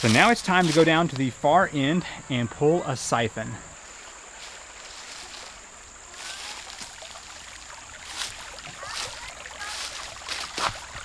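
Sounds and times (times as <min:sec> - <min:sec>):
footsteps through grass and leaves: 0:00.0 - 0:01.4, 0:03.7 - 0:11.0
flowing creek: 0:00.0 - 0:11.0
high insect trill: 0:00.0 - 0:11.0.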